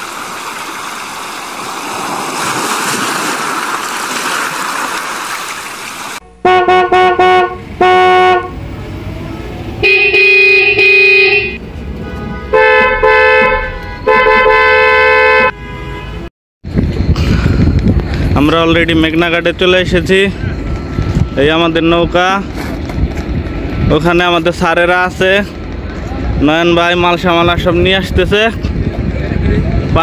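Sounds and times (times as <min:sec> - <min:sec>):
vehicle horns honking: 0:06.2 - 0:08.6, 0:09.8 - 0:16.3.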